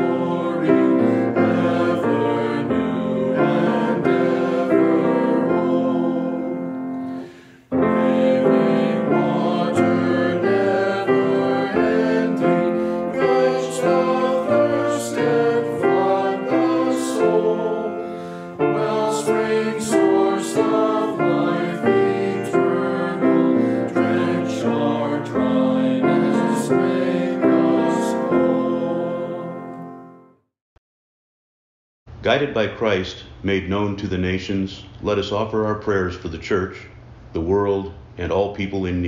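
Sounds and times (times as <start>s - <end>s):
choir singing a hymn: 0.0s - 30.2s
piano accompaniment: 0.0s - 30.4s.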